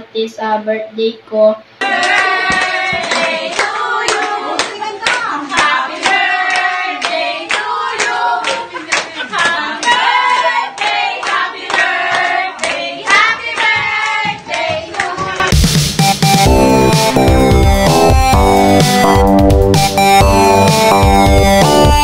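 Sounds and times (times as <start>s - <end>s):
people singing together: 1.8s - 15.5s
rhythmic handclaps: 1.8s - 22.0s.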